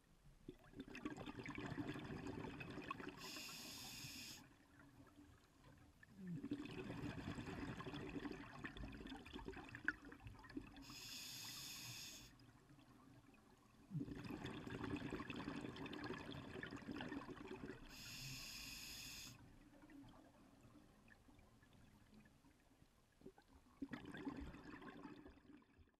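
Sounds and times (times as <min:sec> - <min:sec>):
exhaled bubbles rushing underwater: 0:00.6 - 0:03.4, 0:06.1 - 0:11.0, 0:12.8 - 0:18.1, 0:23.3 - 0:25.7
regulator inhalation hiss: 0:03.2 - 0:04.4, 0:10.9 - 0:12.3, 0:17.9 - 0:19.4.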